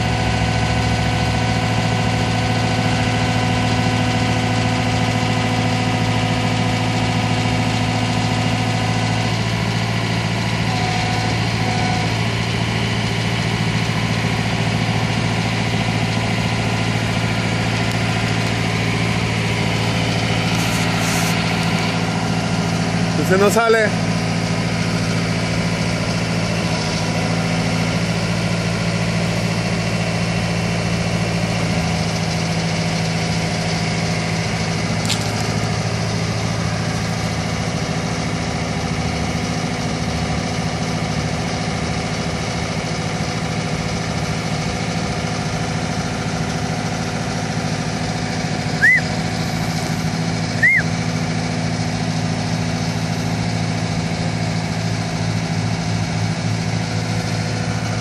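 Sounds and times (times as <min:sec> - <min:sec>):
boom lift engine running: 0:00.0 - 0:58.0
rising and falling chirps: 0:48.8 - 0:49.2, 0:50.6 - 0:50.9.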